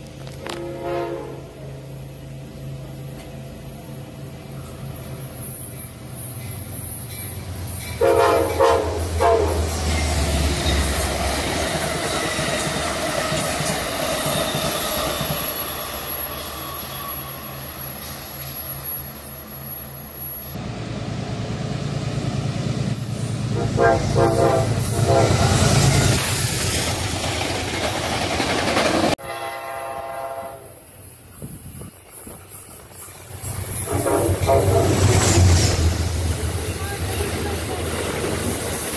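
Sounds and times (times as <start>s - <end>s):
passing train rumble: 0.0s - 38.9s
locomotive horn blasts: 0.4s - 1.7s, 8.0s - 9.8s, 23.5s - 25.8s, 29.2s - 30.8s, 33.9s - 35.0s.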